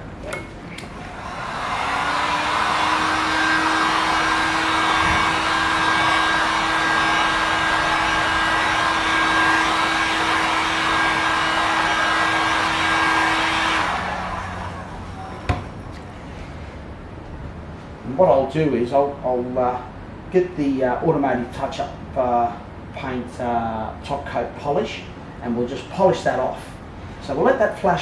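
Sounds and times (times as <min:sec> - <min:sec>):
heat gun blowing with fan hum: 0:00.1 - 0:16.2.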